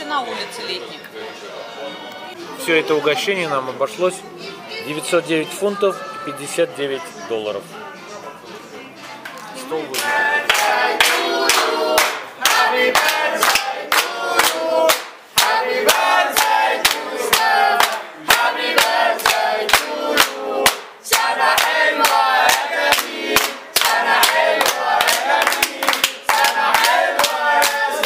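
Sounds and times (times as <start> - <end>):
group singing a chanted song: 9.9 - 28.0
hand-clapping: 10.0 - 28.0.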